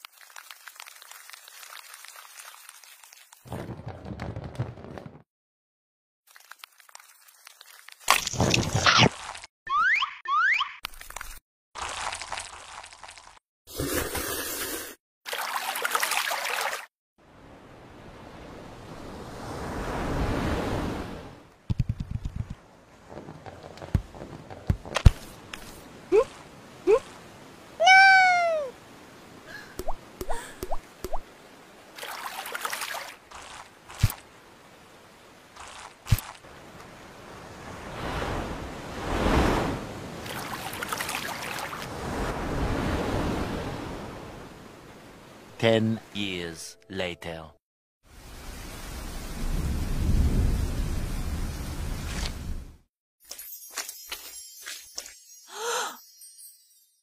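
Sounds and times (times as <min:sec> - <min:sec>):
crackling crunching noise: 0:00.0 - 0:04.7, 0:06.3 - 0:09.5, 0:10.9 - 0:13.4, 0:33.3 - 0:34.3, 0:35.5 - 0:36.9
surf-like wave noise: 0:17.2 - 0:21.4, 0:36.5 - 0:45.5
rushing surf-like noise: 0:37.0 - 0:40.1.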